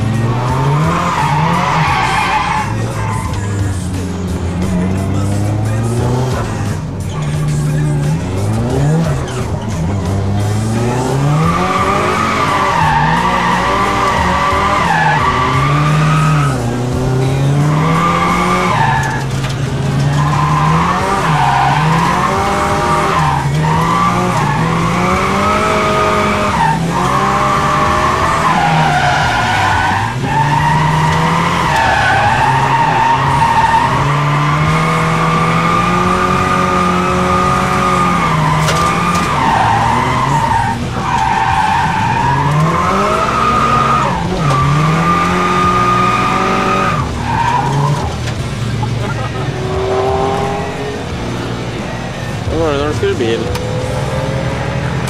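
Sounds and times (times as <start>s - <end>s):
car engine revving: 0.0s - 55.0s.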